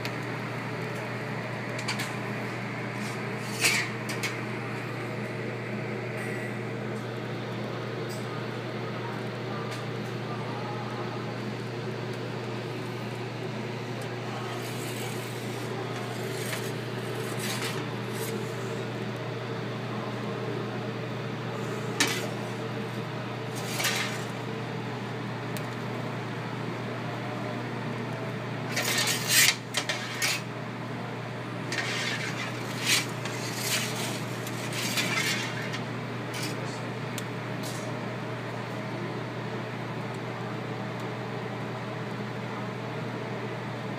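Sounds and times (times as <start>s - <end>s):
low mechanical hum: 0.0s - 43.9s.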